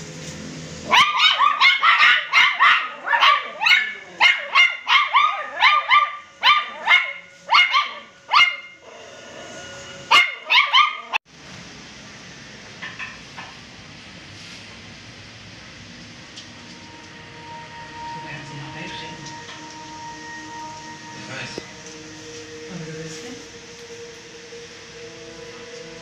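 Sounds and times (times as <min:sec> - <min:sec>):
puppy yapping: 0:00.9 - 0:08.8, 0:10.1 - 0:11.2.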